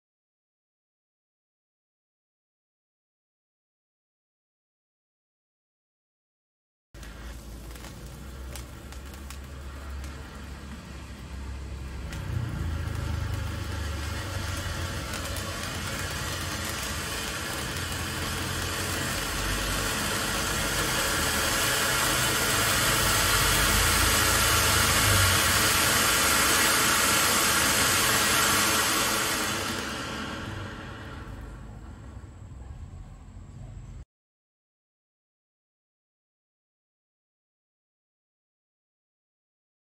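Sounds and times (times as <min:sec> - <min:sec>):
firework fountain hissing sparks: 0:07.0 - 0:33.1.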